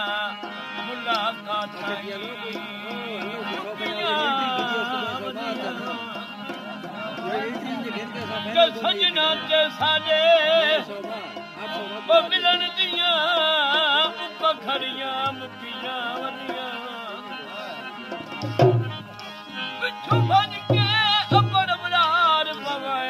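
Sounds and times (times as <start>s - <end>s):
ornamented melody: 0.0s - 23.0s
hand drum beats: 18.2s - 19.2s, 20.1s - 21.9s.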